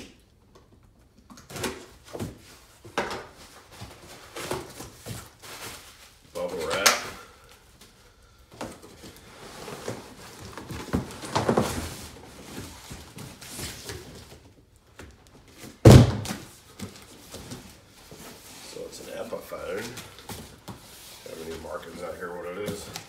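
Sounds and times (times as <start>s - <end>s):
cardboard scraping and rustling: 9.0s - 14.4s
low cardboard thunk: 15.8s - 16.4s.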